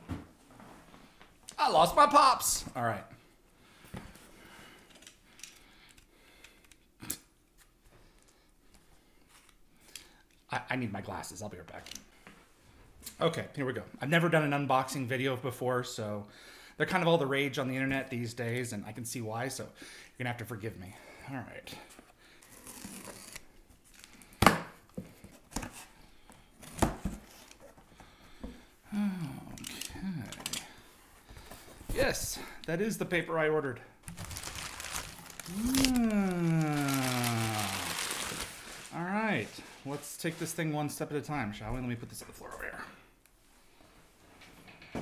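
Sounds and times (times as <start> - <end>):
cardboard and tape ripping: 22.4 - 23.5, 34.1 - 40.5
rustling and handling noises: 34.0 - 42.6.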